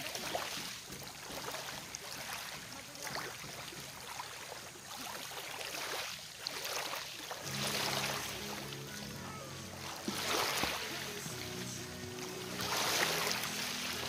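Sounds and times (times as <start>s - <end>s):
small waves washing on shore: 0.0s - 14.0s
low steady tones: 7.4s - 14.0s.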